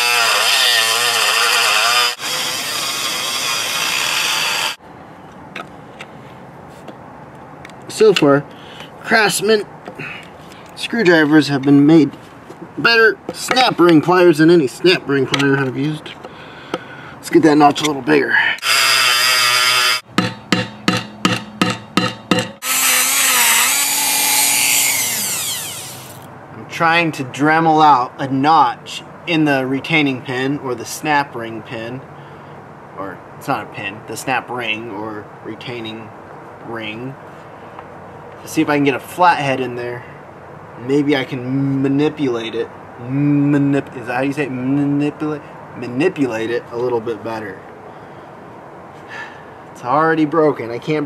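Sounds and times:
rotary tool grinding metal: 0.0s - 4.8s, 18.6s - 20.6s, 22.4s - 26.3s
hammer tapping metal: 20.1s - 22.6s.

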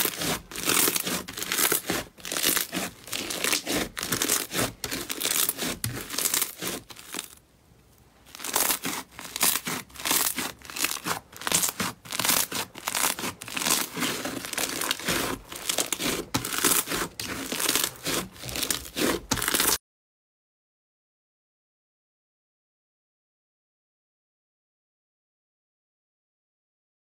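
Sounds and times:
slime crackling when squeezed: 8.3s - 19.8s.

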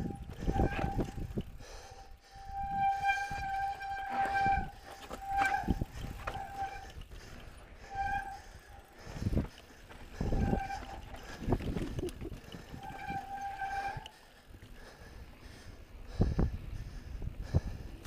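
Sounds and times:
bicycle disc brakes squealing: 0.0s - 14.4s
low tyre rumble: 0.0s - 18.0s.

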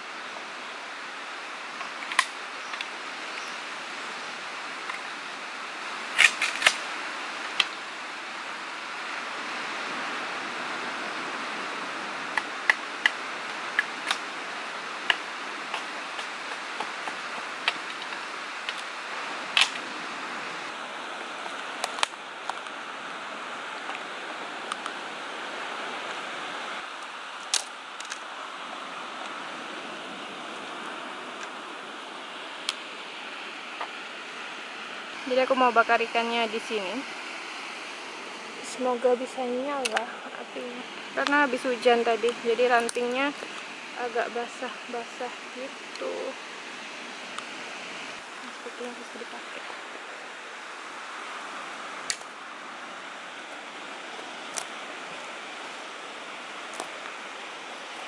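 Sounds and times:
surf rushing: 0.0s - 58.0s.

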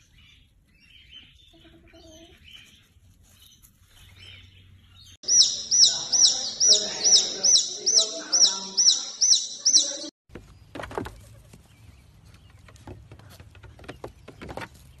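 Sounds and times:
chicks peeping: 0.5s - 3.0s, 5.0s - 10.1s.

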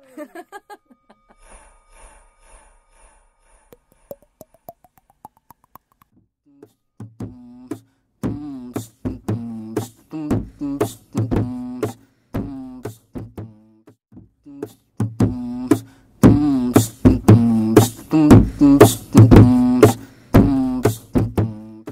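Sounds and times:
beatboxing: 3.8s - 13.8s, 14.4s - 21.9s.

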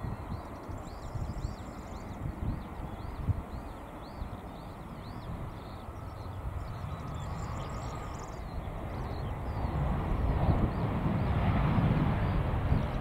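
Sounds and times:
small bird chirping: 0.0s - 9.8s
jet engines rumbling: 0.0s - 13.0s.

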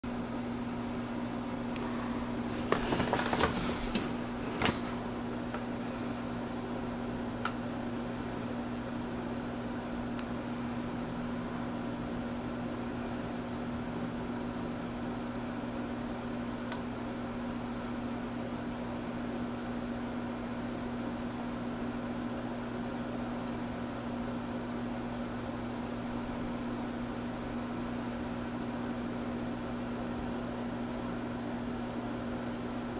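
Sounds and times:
low mechanical hum: 0.0s - 32.9s.

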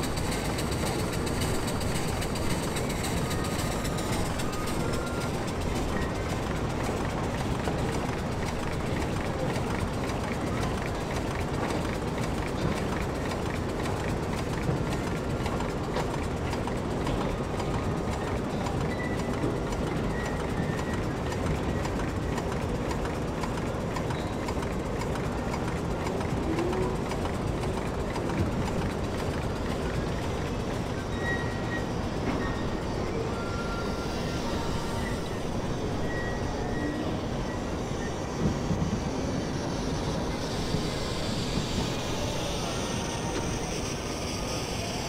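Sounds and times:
steam engine running: 0.0s - 45.0s
steam hissing: 26.1s - 45.0s.

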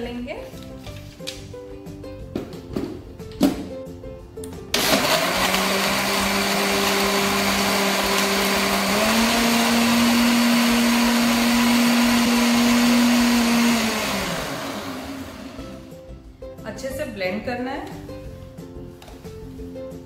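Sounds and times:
blender motor running: 4.7s - 15.9s.

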